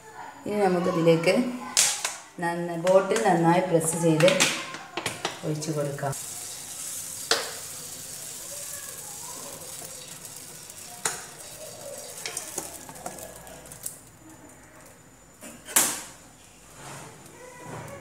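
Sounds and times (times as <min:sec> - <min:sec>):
batter sizzling on a hot pan: 0:05.2 - 0:14.9.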